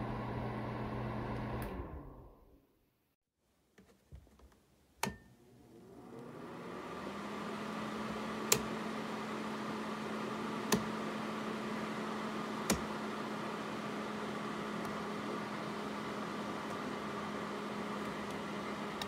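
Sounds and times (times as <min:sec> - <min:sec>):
heater fan whirring: 0:05.5 - 0:19.0.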